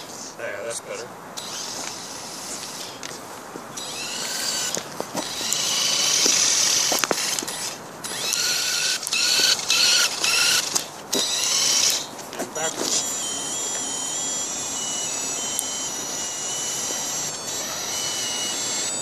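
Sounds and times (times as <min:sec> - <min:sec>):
model car motors whining: 0:00.0 - 0:19.0
sharp clicks: 0:01.4 - 0:19.0.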